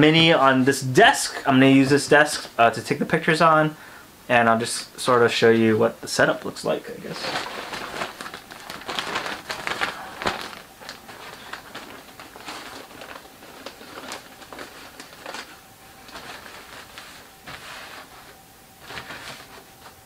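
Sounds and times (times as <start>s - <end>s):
cloth rustling: 6.8s - 20.0s.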